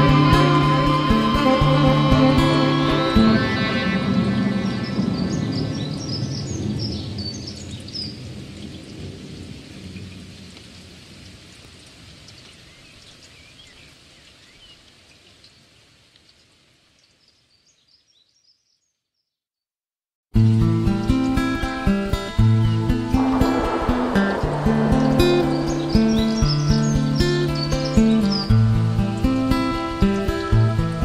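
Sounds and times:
rain and thunder: 4.6s - 12.8s, 21.4s - 31.0s
high chirps: 22.5s - 28.6s.

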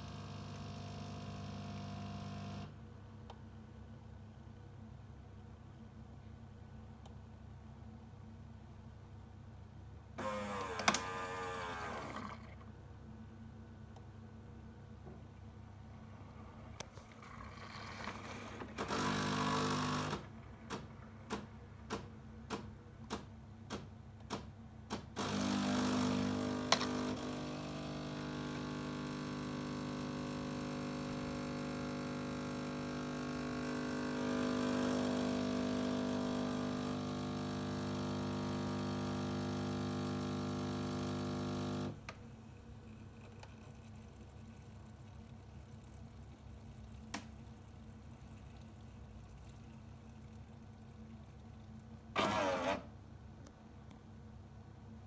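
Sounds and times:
coffee machine motor noise: 0.0s - 2.8s, 10.2s - 12.7s, 16.7s - 21.0s, 25.2s - 53.0s
pump hum: 0.0s - 2.8s, 10.2s - 12.7s, 15.9s - 21.0s, 25.2s - 53.2s.

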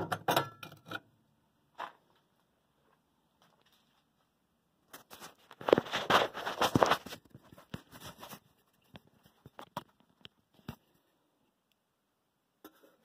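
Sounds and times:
metal capsule knocking and scraping: 0.0s - 1.1s.

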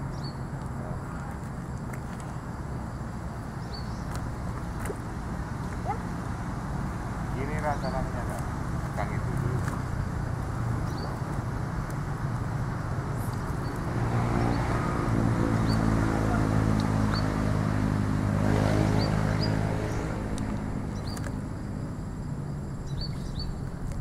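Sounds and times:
motor vehicle engine humming: 0.0s - 24.0s
bird chirping: 3.6s - 4.2s, 10.8s - 11.2s, 22.8s - 23.6s.

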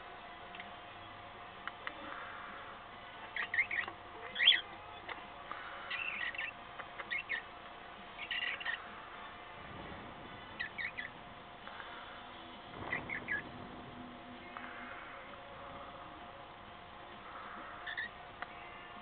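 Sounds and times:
cockatiels chirping: 3.3s - 7.5s, 8.2s - 9.0s, 10.6s - 11.1s, 12.8s - 13.5s, 17.4s - 18.2s.

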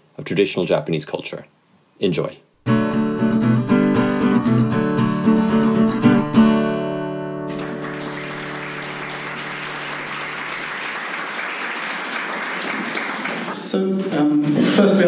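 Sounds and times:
acoustic guitar strumming: 2.6s - 10.4s
audience applause: 7.5s - 13.7s.

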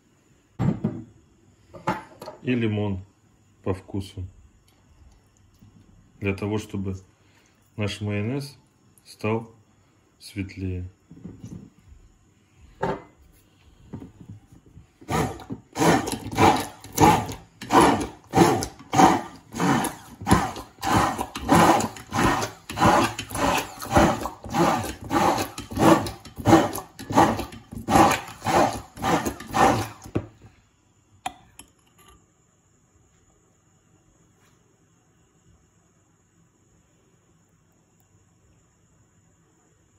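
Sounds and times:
immersion blender blending: 15.0s - 30.2s.

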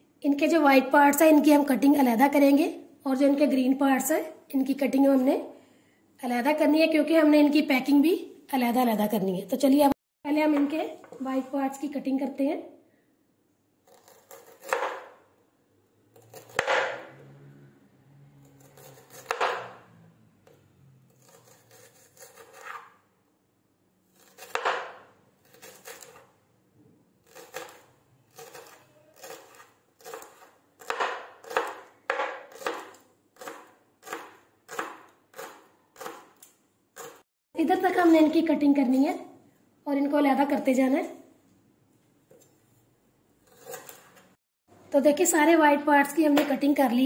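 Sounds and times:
knife slicing garlic on board: 13.8s - 15.2s, 16.2s - 17.1s, 18.4s - 19.8s, 21.1s - 23.0s, 24.2s - 26.3s, 27.2s - 37.2s, 43.4s - 44.2s.

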